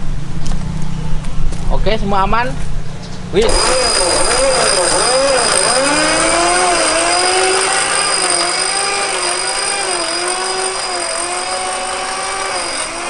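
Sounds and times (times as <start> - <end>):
winch motor whining: 3.4 - 13.0.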